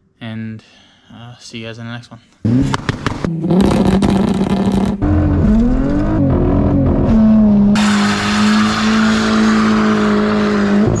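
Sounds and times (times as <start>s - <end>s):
car engine revving high: 2.4s - 11.0s.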